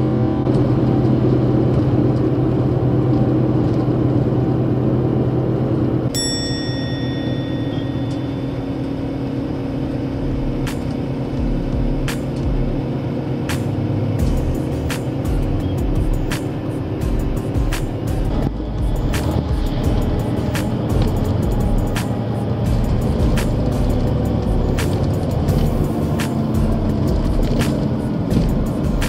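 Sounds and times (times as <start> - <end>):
bus engine running: 0.0 - 29.0
road rumble: 0.0 - 29.0
short ringing tone: 6.1 - 9.3.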